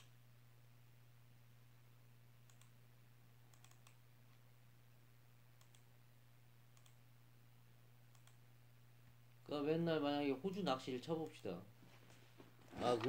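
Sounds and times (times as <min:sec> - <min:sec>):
steady low hum: 0:00.0 - 0:13.0
computer mouse clicks: 0:02.4 - 0:02.8, 0:03.5 - 0:04.0, 0:05.6 - 0:05.9, 0:06.7 - 0:07.0, 0:08.1 - 0:08.4.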